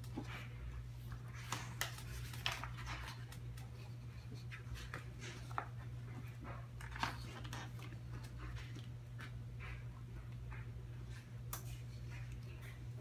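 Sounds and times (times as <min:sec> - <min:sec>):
steady low hum: 0:00.0 - 0:13.0
book pages rustling: 0:01.1 - 0:03.8.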